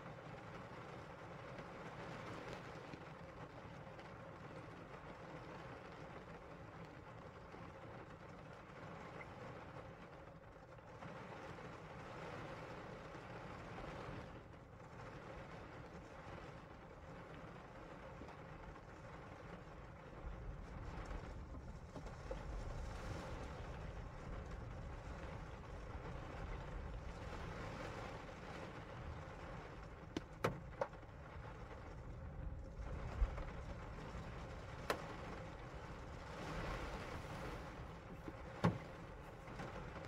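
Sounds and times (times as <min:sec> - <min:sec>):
rain on car windshield and roof: 0:00.0 - 0:40.0
single raindrop hits: 0:34.8 - 0:35.5.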